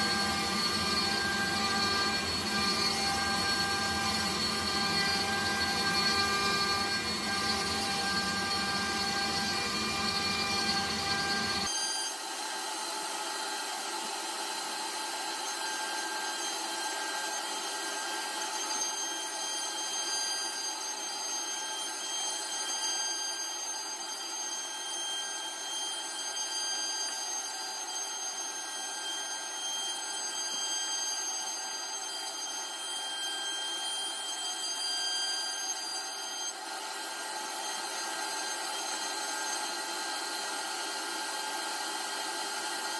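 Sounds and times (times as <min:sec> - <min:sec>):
vacuum hose sucking: 0:00.0 - 0:11.7
cutter milling wood: 0:00.0 - 0:42.9
router spindle whining: 0:00.0 - 0:42.9.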